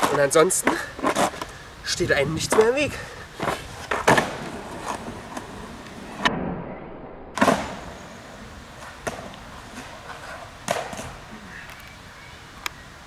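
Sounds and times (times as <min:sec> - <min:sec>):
skateboard wheels rolling on asphalt: 0:00.0 - 0:06.3, 0:07.4 - 0:12.4
skateboard deck clacking: 0:03.4 - 0:05.9, 0:08.8 - 0:11.2.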